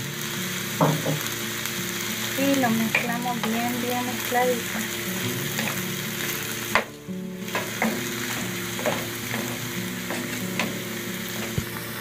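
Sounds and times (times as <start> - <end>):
meat sizzling in a frying pan: 0.0 - 12.0
spatula scraping a pan: 5.2 - 6.4, 7.4 - 11.7.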